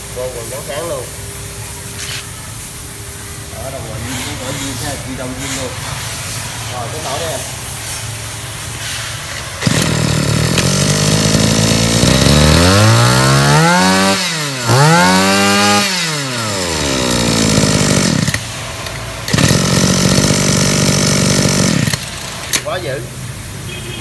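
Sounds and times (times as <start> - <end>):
brush cutter engine revving: 9.6 - 22.7.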